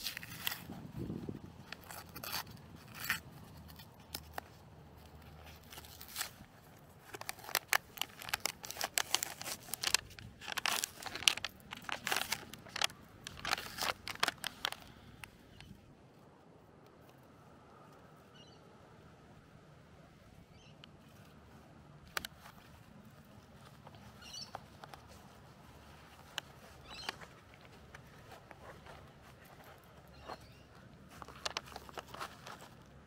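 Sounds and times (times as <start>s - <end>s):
plastic packaging crinkling and tearing: 0.0s - 15.3s, 31.1s - 32.9s.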